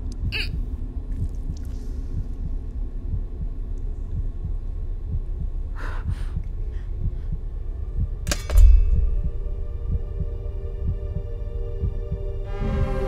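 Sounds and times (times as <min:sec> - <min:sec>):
low heartbeat-like pulse: 0:00.0 - 0:13.0.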